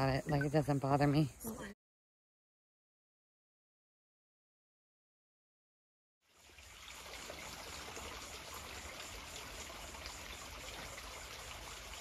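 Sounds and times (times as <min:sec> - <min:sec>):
running water hissing: 0:06.3 - 0:12.0.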